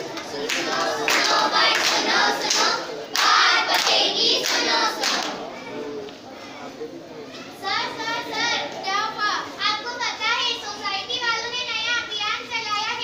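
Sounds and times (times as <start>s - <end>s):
children singing in chorus: 0.0s - 5.4s
hands clapping in rhythm: 0.0s - 5.4s.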